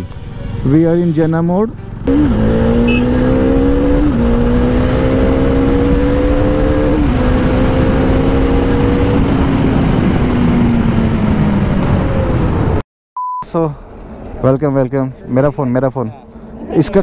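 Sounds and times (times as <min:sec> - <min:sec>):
motorcycle engine accelerating: 0:02.0 - 0:12.8.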